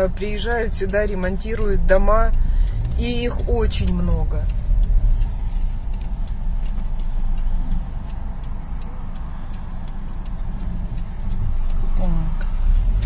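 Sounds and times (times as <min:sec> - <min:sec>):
car engine idling: 0:00.0 - 0:13.0
turn signal ticking: 0:00.0 - 0:13.0.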